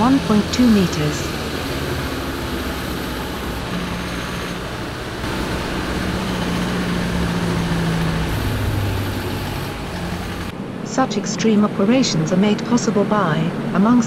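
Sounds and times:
tyre and road noise: 0.0s - 10.8s
diesel truck engine hum: 0.0s - 14.0s.

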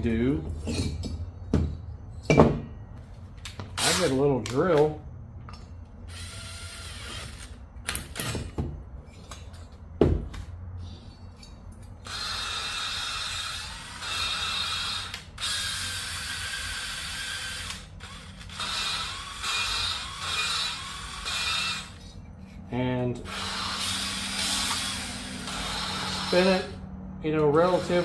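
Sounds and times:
drill grinding valve: 12.1s - 22.0s, 23.3s - 26.7s, 27.6s - 28.0s.

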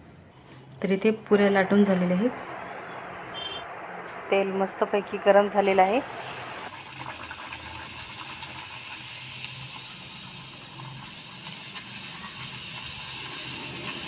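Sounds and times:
food sizzling in hot oil: 5.1s - 14.0s.

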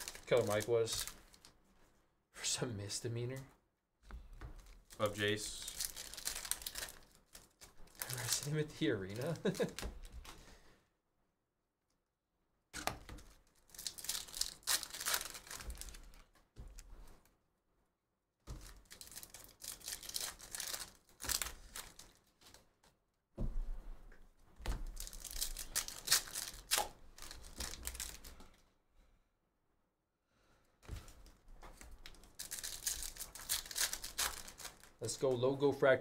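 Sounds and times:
wrappers tearing and crinkling: 0.0s - 1.6s, 4.6s - 10.2s, 13.2s - 16.3s, 18.5s - 22.6s, 24.8s - 28.5s, 31.8s - 35.2s
cards handled: 30.8s - 35.0s.

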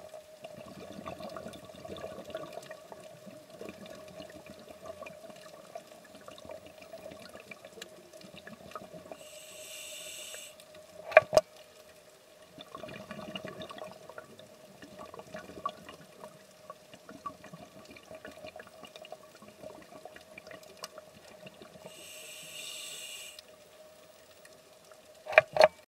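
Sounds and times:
crackle of faint clicks: 0.0s - 9.2s, 10.0s - 25.8s
steady underwater hum: 0.0s - 25.4s
scuba regulator hissing: 9.2s - 10.6s, 21.9s - 23.4s.

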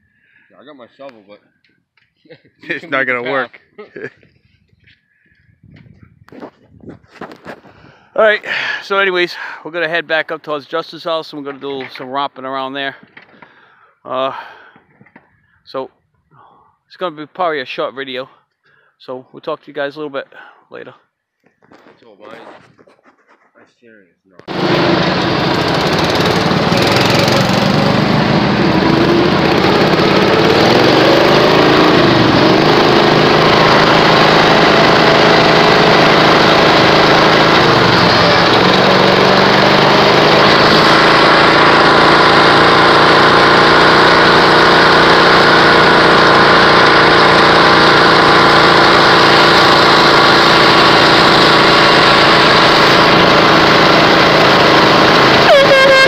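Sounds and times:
riding lawn mower engine: 24.5s - 56.0s.

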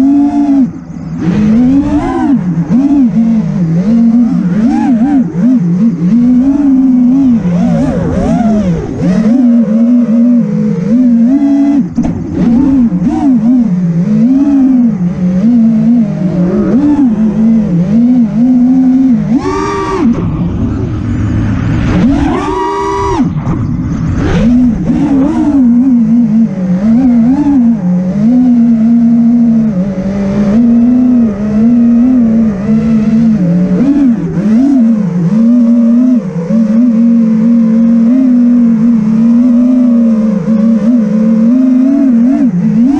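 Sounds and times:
drone motors buzzing: 0.0s - 42.9s.

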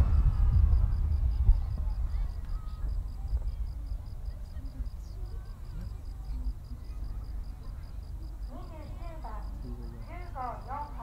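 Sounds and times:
low rumble: 0.0s - 5.2s
faint chatter of spectators: 0.0s - 11.0s
insect chirping: 0.0s - 11.0s.

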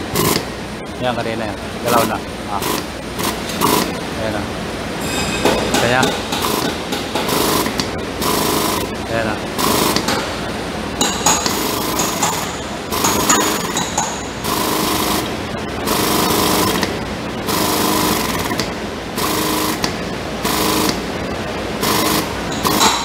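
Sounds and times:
hydraulic power unit running: 0.0s - 23.0s
chain rattle and hum: 5.0s - 7.4s.

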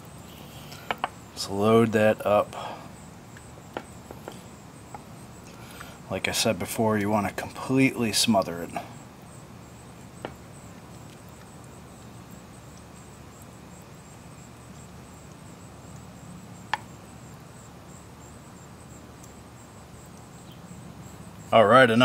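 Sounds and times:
faint insect chirring: 0.0s - 22.0s
low steady hum: 0.0s - 22.0s.

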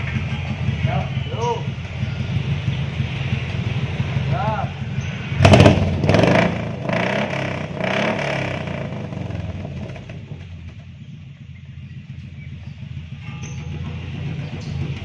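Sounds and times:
engine revving in short blips: 4.9s - 15.0s.

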